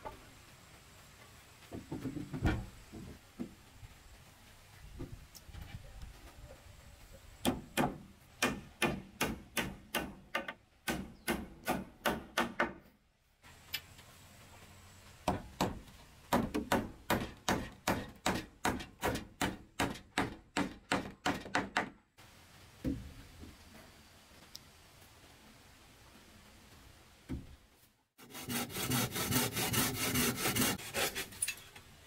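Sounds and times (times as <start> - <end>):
hammer striking wood: 7.4 - 12.9, 15.2 - 22.0.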